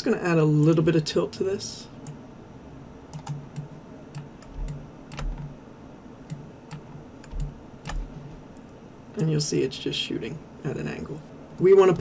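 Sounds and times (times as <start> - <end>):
mouse and keyboard clicking: 3.1 - 5.5, 6.3 - 8.1.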